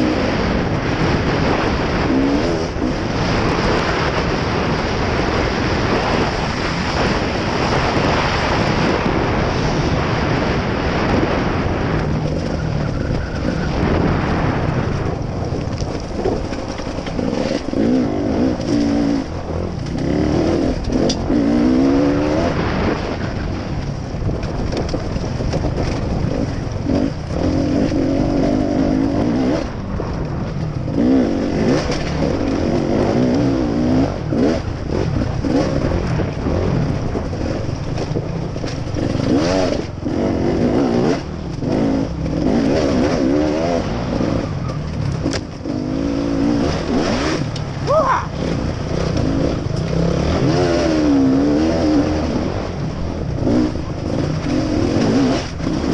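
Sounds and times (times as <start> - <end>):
dirt bike engine revving: 0.0 - 23.6, 25.1 - 55.9.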